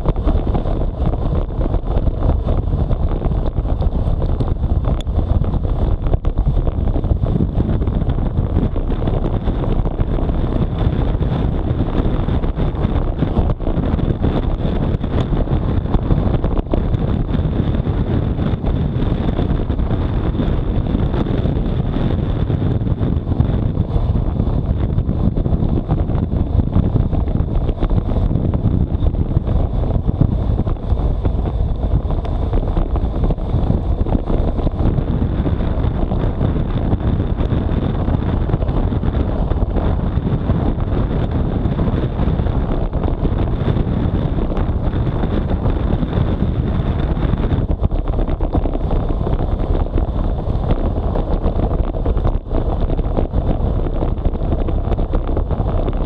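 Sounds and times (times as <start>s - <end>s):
bicycle tyre noise on road: 0.0s - 56.0s
wind buffeting microphone: 0.0s - 56.0s.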